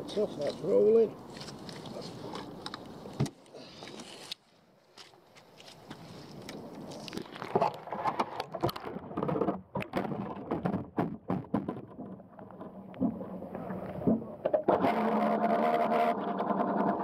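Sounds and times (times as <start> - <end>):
water sloshing against camera housing: 1.2 - 10.8.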